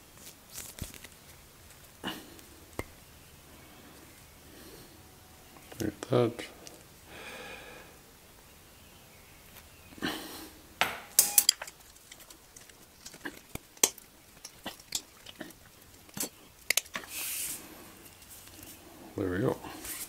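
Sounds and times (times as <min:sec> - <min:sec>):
metal hooks clinking and clicking: 0:11.1 - 0:12.3
short scrape: 0:17.1 - 0:17.6.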